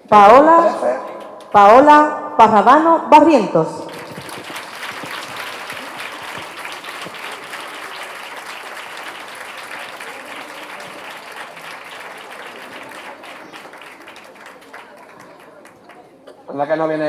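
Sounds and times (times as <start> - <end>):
audience applauding: 3.9 - 16.2.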